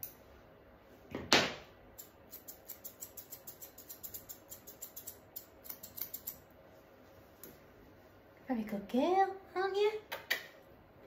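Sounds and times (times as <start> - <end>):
scissors snipping fur: 2.0 - 6.4.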